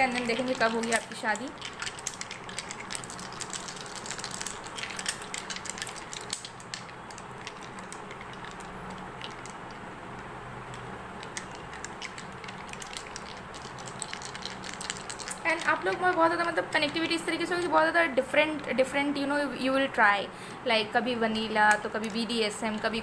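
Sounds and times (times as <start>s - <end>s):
dice rattling in hands: 0.0s - 9.8s, 11.2s - 17.1s.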